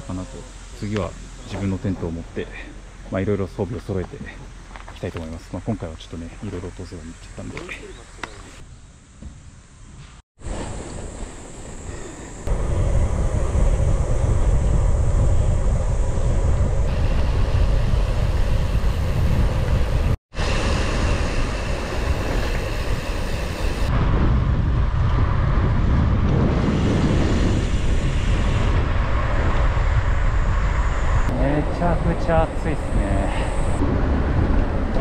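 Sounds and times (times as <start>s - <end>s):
road noise: 0.0s - 8.6s, 10.4s - 35.0s
wind buffeting microphone: 10.4s - 35.0s.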